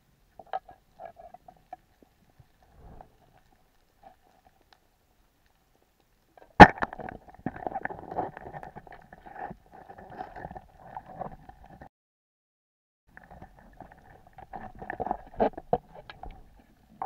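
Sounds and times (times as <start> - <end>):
speargun firing underwater: 6.6 - 7.1.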